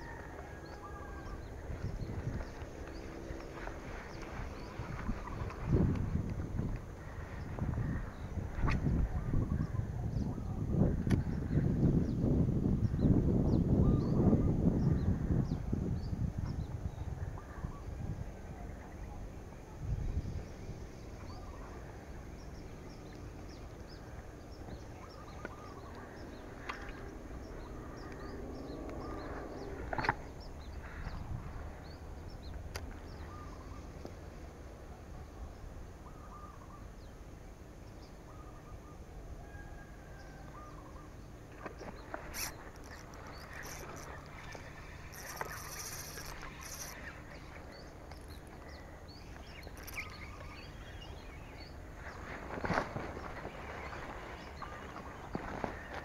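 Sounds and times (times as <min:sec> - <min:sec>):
brief rustles: 0:41.6 - 0:48.6.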